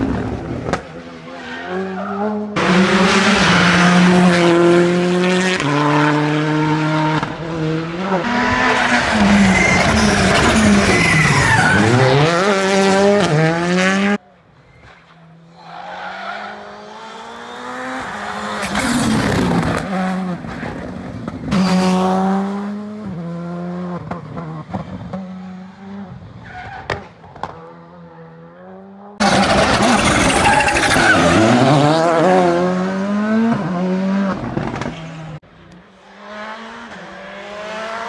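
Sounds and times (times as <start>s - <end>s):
rally car engines revving: 0.0s - 14.2s, 14.9s - 38.0s
tyre squeal: 9.0s - 12.3s, 14.6s - 19.6s, 29.7s - 31.5s
car passing loudly: 15.3s - 24.0s.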